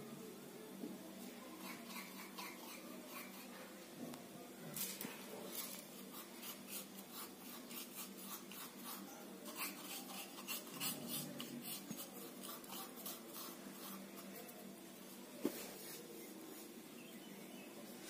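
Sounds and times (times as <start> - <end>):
fingers scraping seeds in stone mortar: 4.8 - 14.3.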